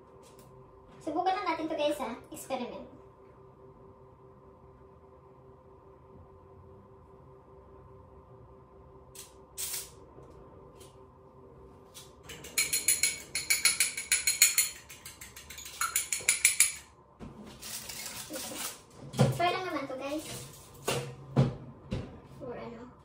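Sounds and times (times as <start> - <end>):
utensil clinking against bowl: 12.3 - 16.9.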